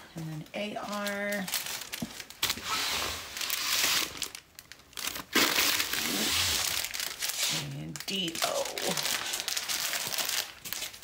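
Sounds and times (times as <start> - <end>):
paper and plastic bags crinkling: 0.0 - 11.0.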